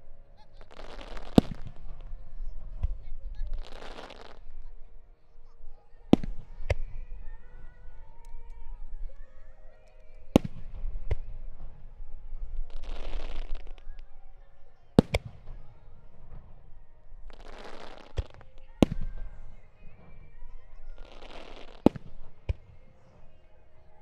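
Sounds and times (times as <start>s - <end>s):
fireworks hissing crackle: 0.0s - 4.9s, 9.8s - 14.4s, 15.0s - 23.2s
fireworks bursting bangs: 0.6s - 4.8s, 6.0s - 7.3s, 10.2s - 14.3s, 15.0s - 23.3s.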